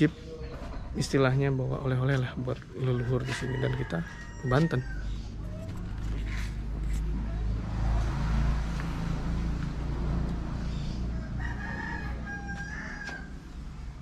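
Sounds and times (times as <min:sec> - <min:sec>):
rooster crowing: 0:02.8 - 0:05.5, 0:10.8 - 0:13.8.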